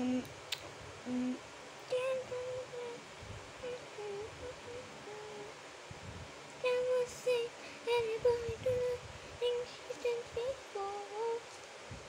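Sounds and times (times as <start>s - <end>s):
girl humming: 0.0s - 0.3s, 1.1s - 3.0s, 3.6s - 5.6s.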